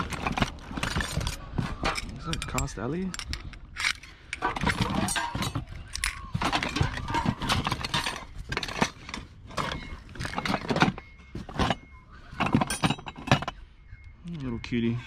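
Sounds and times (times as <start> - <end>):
scrap metal clanking: 0.0 - 13.6.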